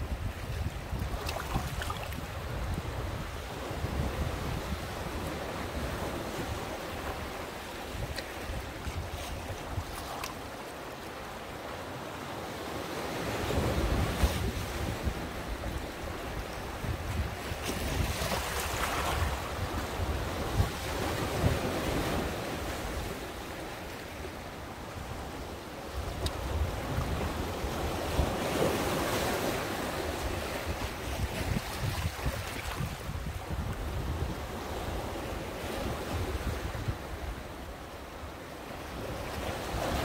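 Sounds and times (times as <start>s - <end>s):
wind buffeting microphone: 0.0s - 10.0s, 13.5s - 23.2s, 25.9s - 29.2s, 29.9s - 37.5s
sea waves washing ashore: 0.0s - 40.0s.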